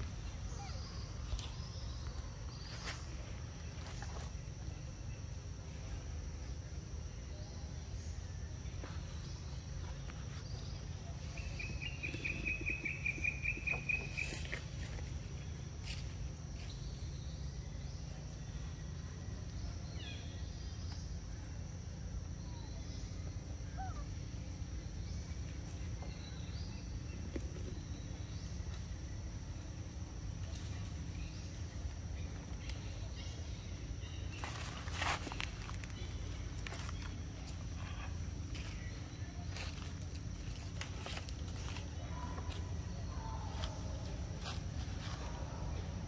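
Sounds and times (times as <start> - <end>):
bird trill: 11.2 - 14.6.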